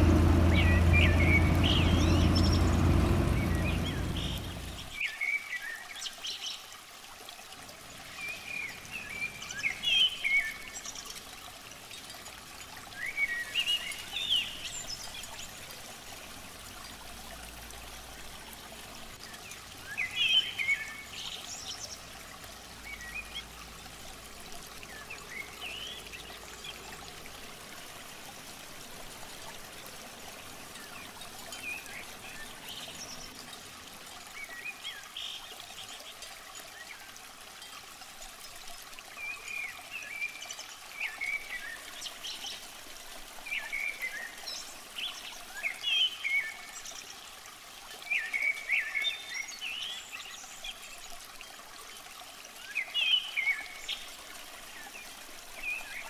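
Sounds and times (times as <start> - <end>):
small birds chirping: 0.0 - 6.6, 12.9 - 15.8, 18.8 - 23.8
water trickling in a ditch: 0.0 - 56.0.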